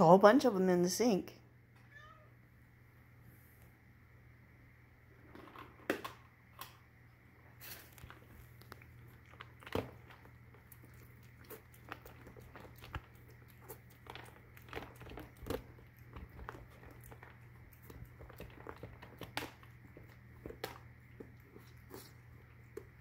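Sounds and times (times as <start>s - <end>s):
cat crunching dry treats: 7.4s - 23.0s.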